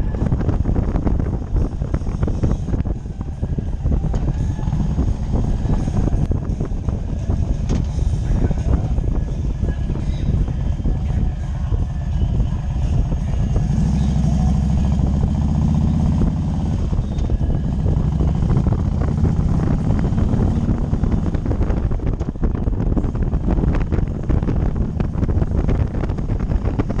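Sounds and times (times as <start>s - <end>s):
motorcycle engine cruising: 0.0s - 27.0s
wind buffeting a microphone: 0.0s - 27.0s.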